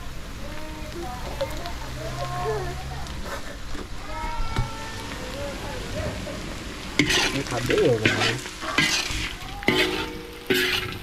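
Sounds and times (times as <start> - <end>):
meat sizzling: 0.0 - 11.0
metal spatula scraping wok: 7.0 - 11.0.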